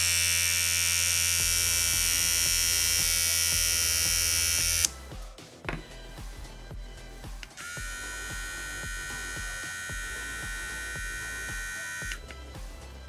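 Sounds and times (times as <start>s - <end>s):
electric trimmer buzzing: 0.0s - 4.9s, 7.4s - 12.4s.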